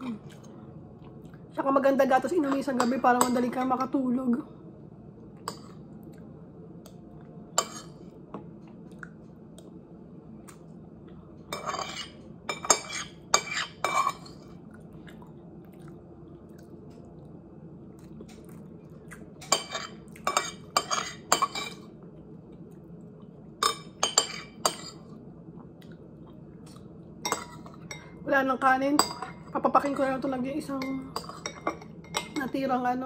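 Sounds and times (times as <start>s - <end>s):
steady low hum: 0.0s - 33.0s
metal spoon scraping ceramic plate: 19.6s - 21.8s.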